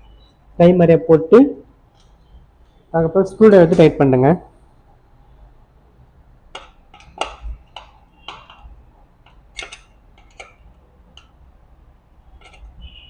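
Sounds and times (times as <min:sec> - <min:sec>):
screwdriver clicking on metal: 0:06.6 - 0:11.4, 0:12.4 - 0:12.7.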